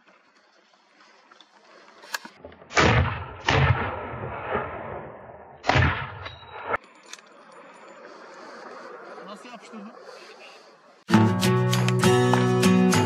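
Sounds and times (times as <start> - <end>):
rifle shots echoing: 2.6 - 6.8.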